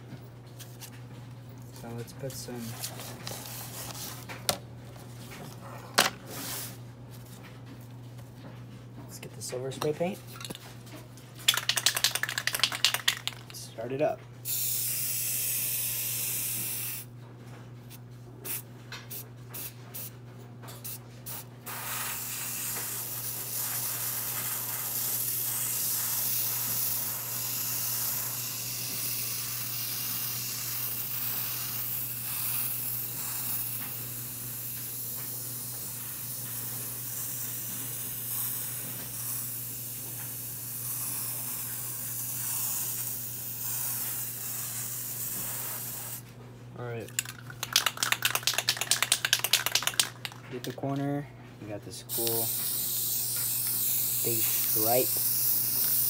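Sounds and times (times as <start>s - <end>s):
aerosol spray hissing: 21.3s - 46.2s, 52.1s - 56.0s.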